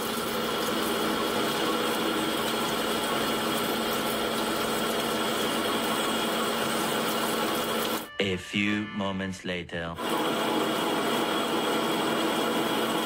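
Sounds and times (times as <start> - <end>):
metal lathe humming: 10.0 - 13.0.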